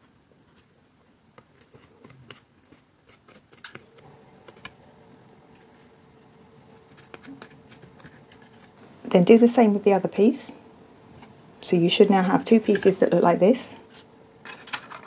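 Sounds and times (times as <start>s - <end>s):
cardstock clicks and rustles: 1.3s - 4.8s, 6.8s - 8.8s, 14.4s - 15.0s.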